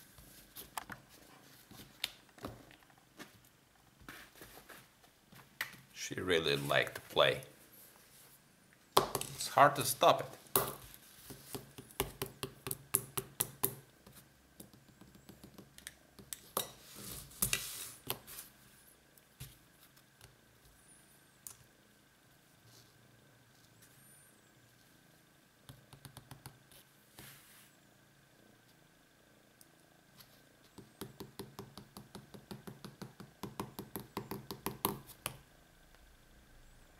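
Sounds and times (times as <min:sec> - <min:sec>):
pens clicking and tapping on table: 0:30.8 - 0:35.4.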